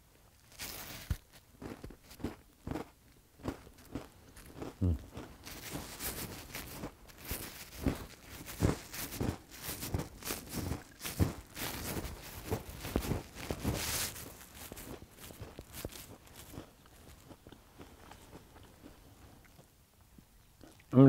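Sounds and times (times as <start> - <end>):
dry leaves crunching and rustling: 5.4 - 17.3.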